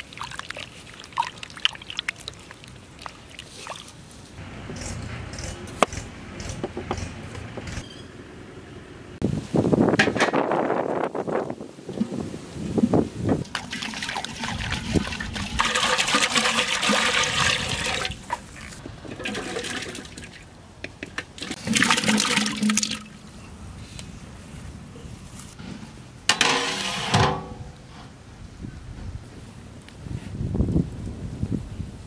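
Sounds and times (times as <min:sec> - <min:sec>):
water sloshing in a metal pot: 0:00.0 - 0:03.9, 0:13.4 - 0:20.4, 0:21.2 - 0:23.2.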